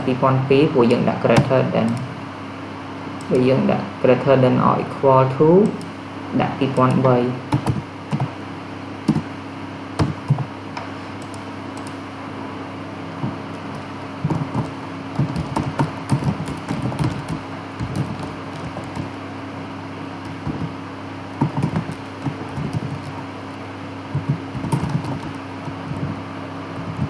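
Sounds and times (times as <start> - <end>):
steady low hum: 0.0 - 27.0
typing on computer keyboard: 6.8 - 8.3, 9.1 - 9.3, 10.0 - 10.5, 11.2 - 12.0, 13.5 - 19.2, 20.2 - 23.3, 24.1 - 26.1.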